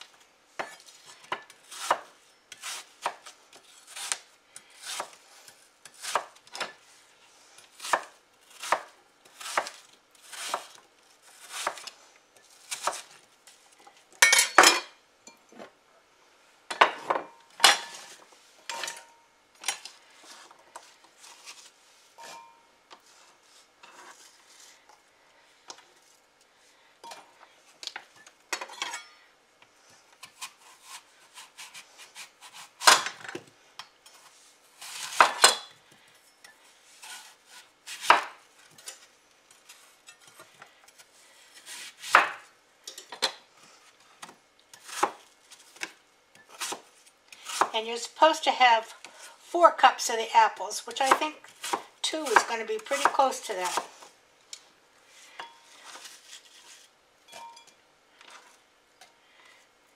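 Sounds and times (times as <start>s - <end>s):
knife chopping on wooden board: 37.0s - 38.3s, 41.7s - 42.4s.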